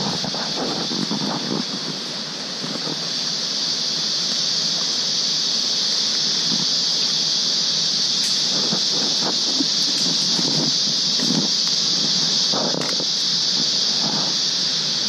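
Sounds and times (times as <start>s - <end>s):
insect chorus drone: 0.0s - 15.0s
leaves rustling: 6.0s - 14.6s.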